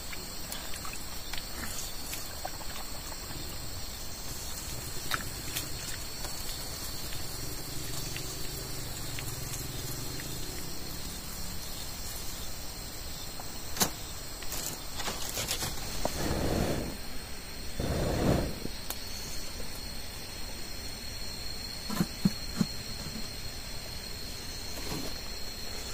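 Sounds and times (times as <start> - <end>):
high-pitched insect buzz: 3.2 - 16.2.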